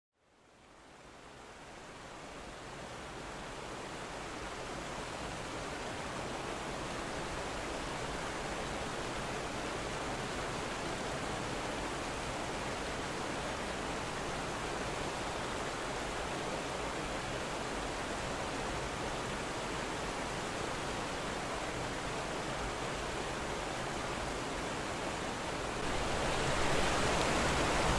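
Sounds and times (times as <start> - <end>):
water rushing over spillway: 1.2 - 27.9.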